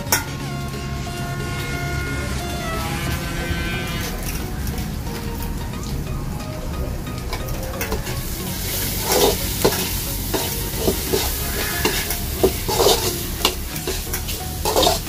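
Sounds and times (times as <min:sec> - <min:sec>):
food sizzling in a pan: 0:07.7 - 0:15.0
spoon scraping a pan: 0:07.8 - 0:15.0.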